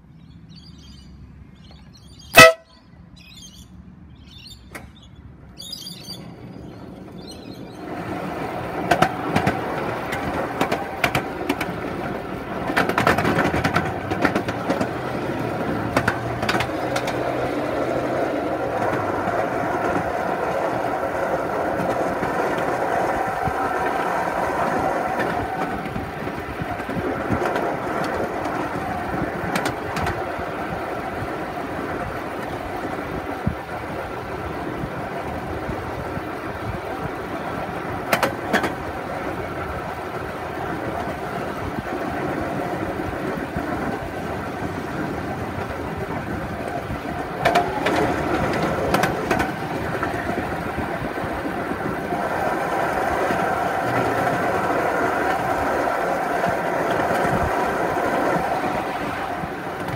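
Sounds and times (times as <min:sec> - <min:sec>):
birds chirping: 0:00.0 - 0:08.5
miniature train rumbling on track: 0:01.8 - 0:02.7, 0:04.7 - 0:59.9.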